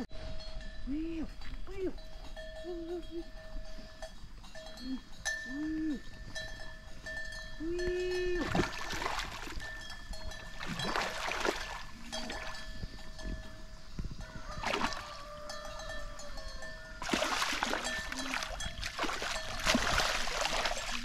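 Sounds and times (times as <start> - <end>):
short low calls: 4.8 - 6.2, 7.6 - 8.8
fish splashing in water: 8.4 - 9.6, 10.6 - 12.4, 14.6 - 15.1, 17.0 - 21.0
steady high ringing tones: 9.6 - 20.5.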